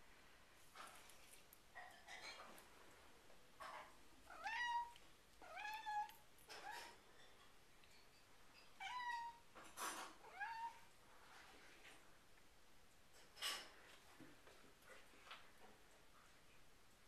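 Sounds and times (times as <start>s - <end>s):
cat meowing: 4.3s - 7.0s, 8.8s - 9.5s, 10.2s - 10.9s.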